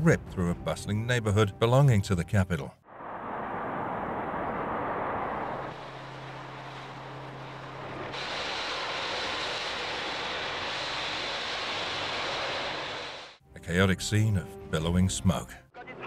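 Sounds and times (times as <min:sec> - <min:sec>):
gas fire roaring: 0:02.9 - 0:13.4.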